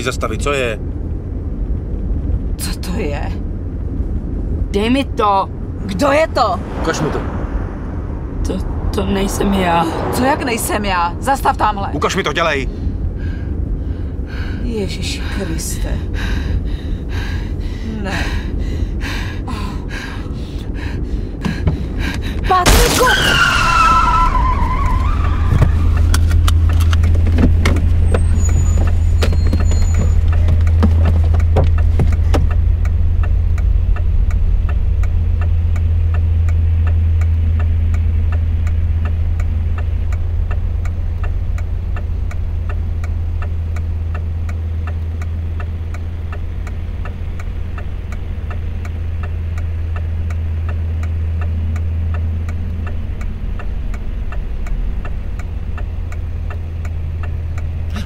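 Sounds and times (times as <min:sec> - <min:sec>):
regular ticking: 0:00.0 - 0:22.9, 0:25.0 - 0:58.0
car engine idling: 0:00.0 - 0:58.0.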